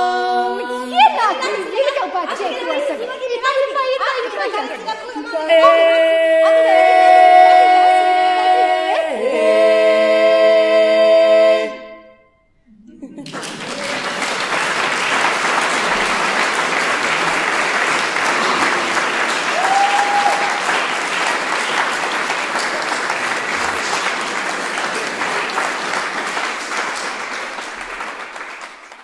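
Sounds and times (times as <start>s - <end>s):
person calling out: 5.5s - 7.1s
audience applauding: 13.2s - 29.0s.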